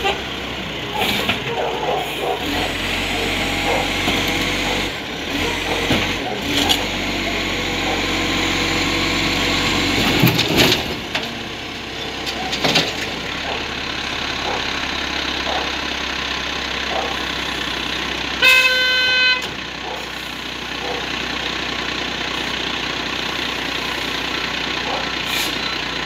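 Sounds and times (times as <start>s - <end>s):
truck diesel engine running: 0.0s - 26.0s.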